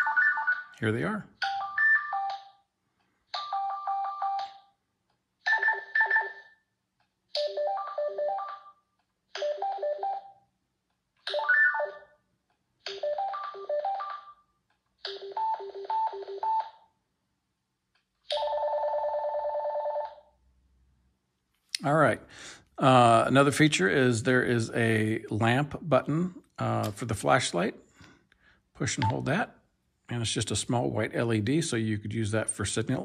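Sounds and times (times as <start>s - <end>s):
electronic beeping melodies: 0.0s - 0.8s.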